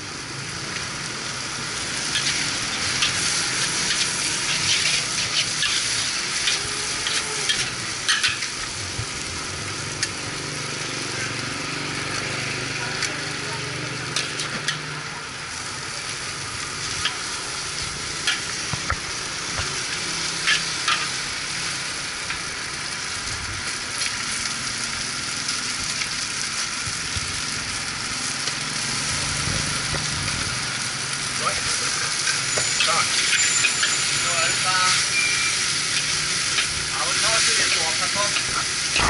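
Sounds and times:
noodles sizzling in a wok: 0:00.0 - 0:39.0
metal spatula scraping a wok: 0:01.9 - 0:08.6, 0:19.8 - 0:21.2, 0:32.1 - 0:39.0.

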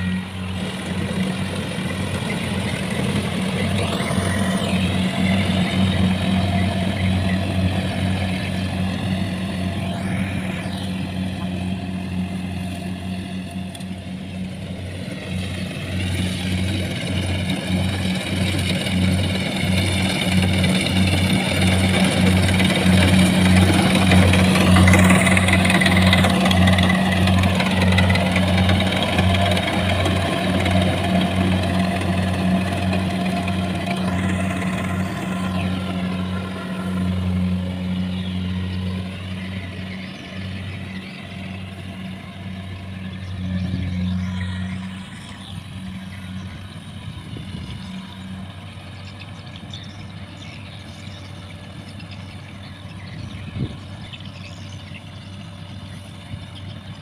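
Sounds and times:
high wavering whine: 0:00.0 - 0:51.2
combine harvester diesel drone: 0:00.0 - 0:57.0.

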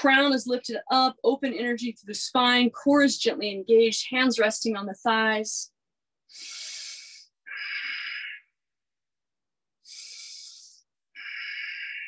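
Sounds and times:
woman breathing deeply: 0:06.3 - 0:08.4, 0:09.8 - 0:12.0.

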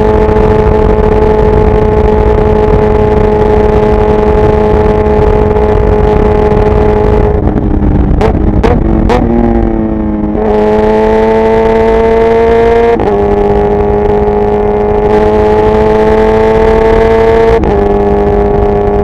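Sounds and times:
motorcycle engine running hard: 0:00.0 - 0:19.0
wind noise: 0:00.0 - 0:19.0.

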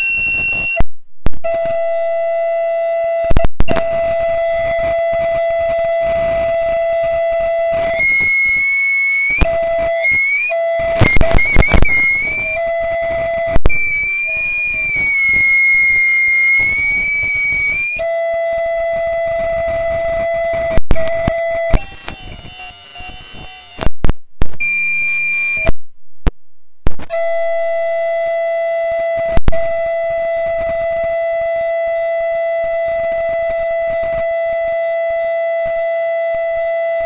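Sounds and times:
audio feedback howl: 0:00.0 - 0:25.8, 0:26.9 - 0:37.0.

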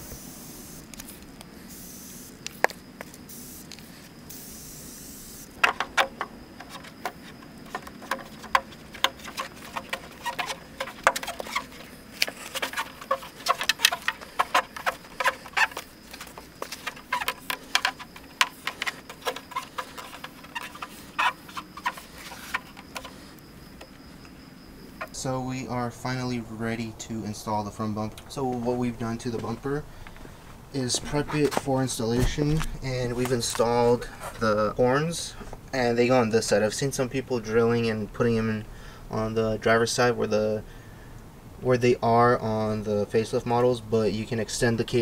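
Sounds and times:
soft hiss: 0:00.0 - 0:05.6.

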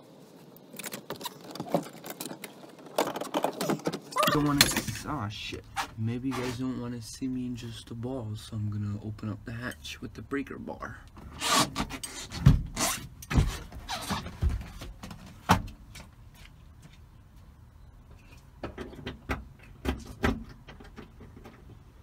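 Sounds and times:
hard knocks and metal clunks: 0:18.6 - 0:21.8.

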